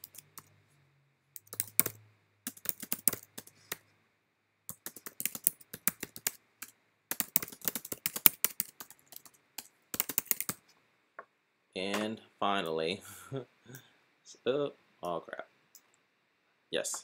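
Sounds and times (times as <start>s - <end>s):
computer keyboard typing: 0.0s - 0.5s, 1.4s - 3.8s, 4.7s - 10.6s.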